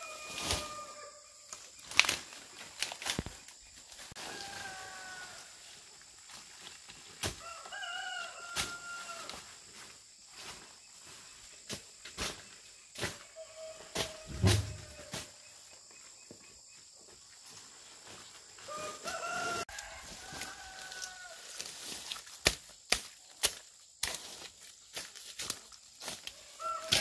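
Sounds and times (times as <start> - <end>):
rooster crowing: 0.0 - 1.3, 4.2 - 5.6, 7.4 - 9.4, 13.4 - 15.1, 18.6 - 21.6, 26.4 - 27.0
machete chopping weeds: 22.1 - 24.5.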